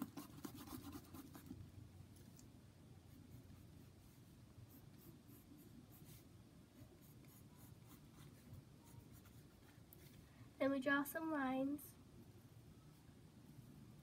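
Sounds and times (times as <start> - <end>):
pencil scratching on paper: 0.0 - 1.6, 3.1 - 9.8.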